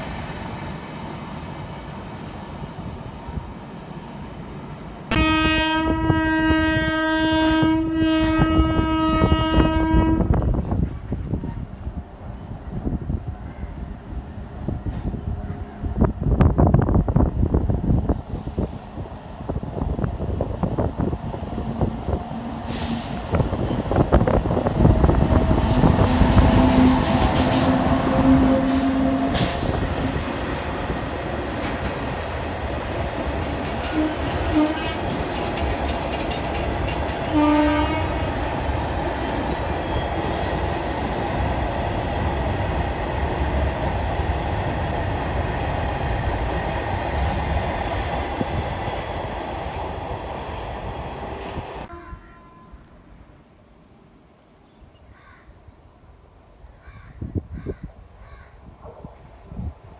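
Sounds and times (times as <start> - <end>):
freight train rumble and clatter: 0.0 - 52.6
locomotive horn: 5.1 - 10.4, 25.5 - 29.8, 33.8 - 35.2, 37.2 - 38.5, 51.8 - 53.0
high wheel squeals: 13.8 - 15.6, 22.5 - 24.1, 25.4 - 29.5, 32.1 - 37.1, 38.0 - 40.8.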